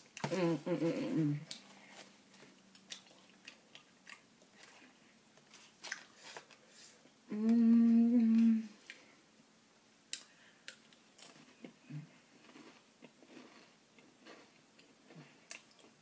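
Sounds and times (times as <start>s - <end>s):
woman humming: 0.2s - 1.6s, 7.3s - 8.8s.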